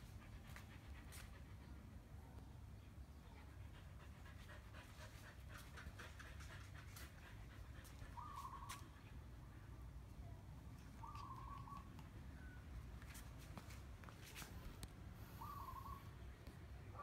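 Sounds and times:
puppy panting: 0:00.0 - 0:02.1, 0:03.3 - 0:09.5.

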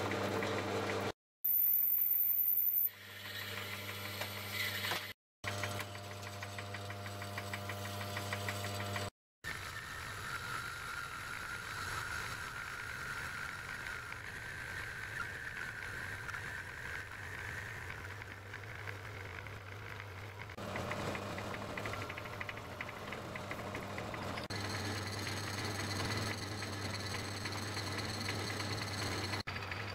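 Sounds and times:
lathe motor hum: 0:10.6 - 0:29.5
fast rattle: 0:17.2 - 0:29.9
lathe cutting whine: 0:20.7 - 0:29.8.

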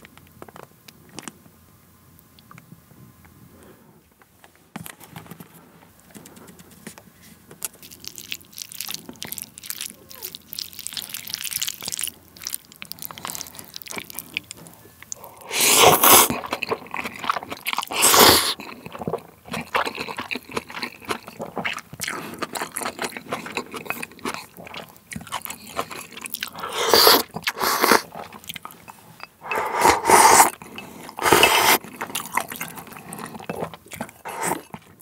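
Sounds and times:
chewing: 0:07.6 - 0:35.0
slurping noodles: 0:15.2 - 0:28.4, 0:29.4 - 0:35.0
chopsticks stirring noodles in bowl: 0:29.5 - 0:32.1.

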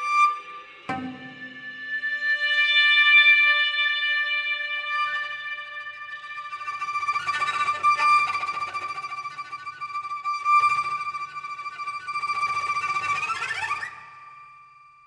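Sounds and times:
solo cello music: 0:06.1 - 0:13.7.

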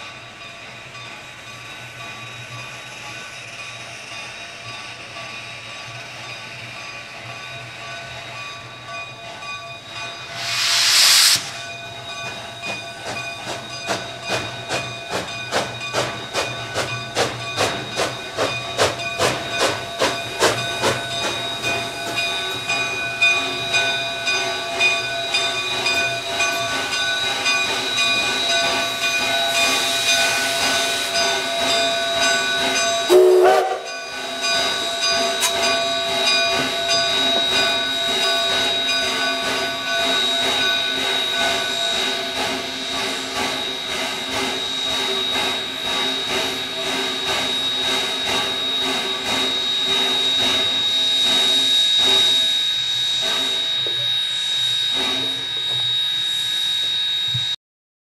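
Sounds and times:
steam locomotive rolling: 0:00.0 - 0:57.6
rising squeal: 0:09.4 - 0:14.0, 0:20.2 - 0:33.1, 0:33.9 - 0:57.6
steam hissing: 0:09.8 - 0:57.4
locomotive bell clanging: 0:11.6 - 0:57.6.

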